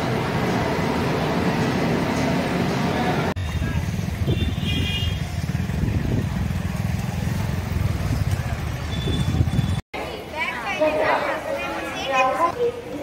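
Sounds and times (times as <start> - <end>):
vehicle rumble: 0.0 - 9.8.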